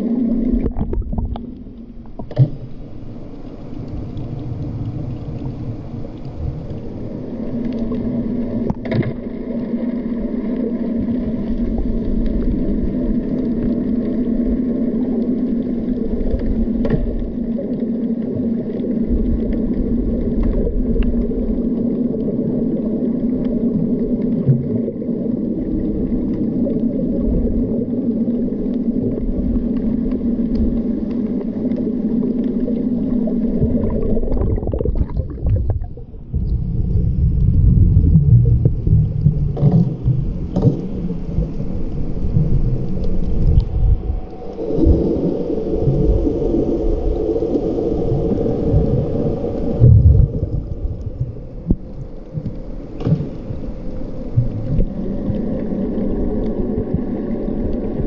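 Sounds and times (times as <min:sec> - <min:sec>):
underwater rumble and water movement: 0:00.0 - 0:58.0
steady low hum: 0:27.4 - 0:58.0.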